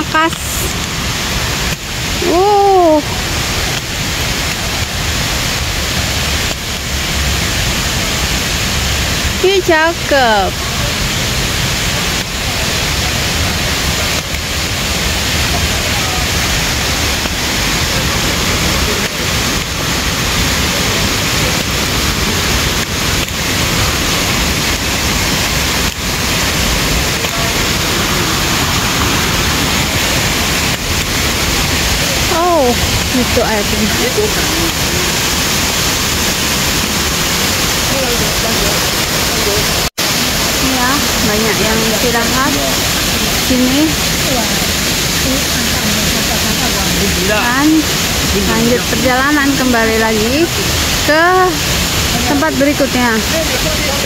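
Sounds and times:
waterfall rushing: 0.0s - 54.0s
person saying ooh: 2.2s - 3.1s.

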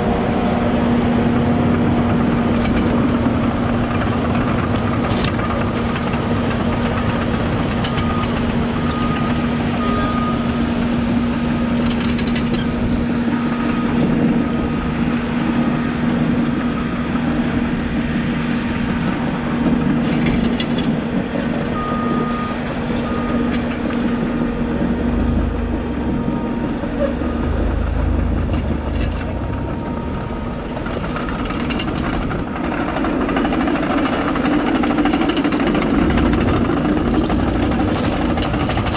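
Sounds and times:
engines humming: 0.0s - 38.9s
backup alarm beeping: 7.8s - 10.6s, 21.8s - 31.8s
deep rumble: 17.4s - 33.7s, 34.4s - 38.9s.

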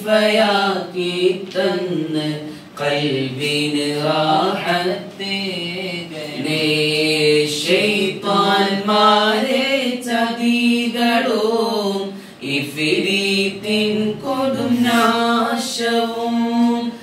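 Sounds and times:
man singing unaccompanied: 0.0s - 17.0s
singer breathing: 2.5s - 2.8s, 12.1s - 12.4s.

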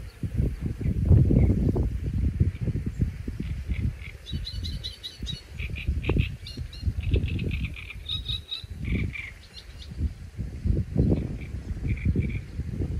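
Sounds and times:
small birds chirping: 0.0s - 12.9s
wind rumbling on microphone: 0.0s - 12.9s.

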